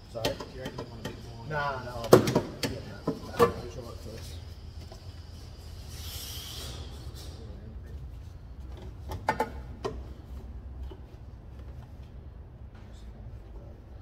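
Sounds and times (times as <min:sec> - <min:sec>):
steady low hum: 0:00.0 - 0:14.0
brief hiss: 0:05.8 - 0:07.5.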